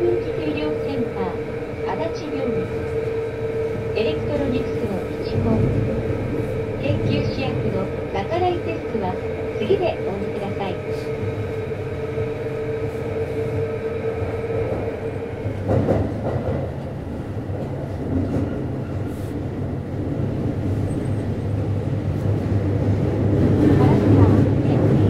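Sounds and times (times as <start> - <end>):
train motor whine: 0.0 - 16.8
wheel and track rumble: 0.0 - 25.0.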